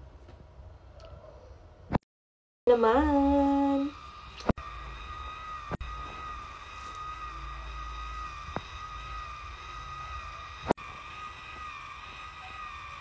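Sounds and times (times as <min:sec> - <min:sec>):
hair curler motor whining: 0:02.7 - 0:13.0.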